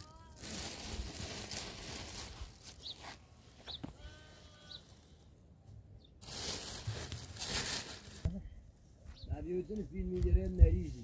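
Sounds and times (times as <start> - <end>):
rustling: 0.0 - 5.3, 6.2 - 8.4
sheep or goat bleating: 3.8 - 5.1.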